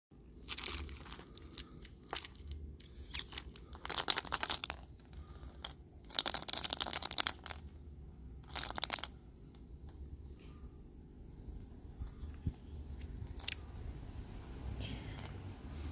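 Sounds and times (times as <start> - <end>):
plastic wrappers crinkling: 0.4 - 7.7, 8.4 - 9.2, 13.2 - 13.6.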